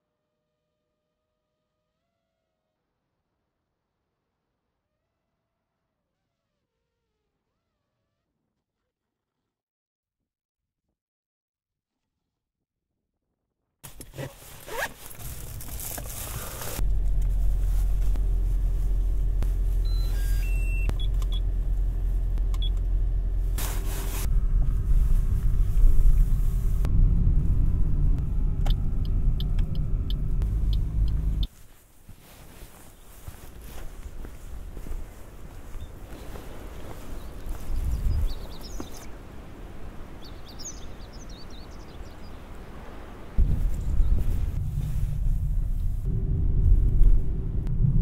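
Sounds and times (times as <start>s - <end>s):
car engine running: 14.9s - 31.5s
short electronic beeps: 19.8s - 21.4s.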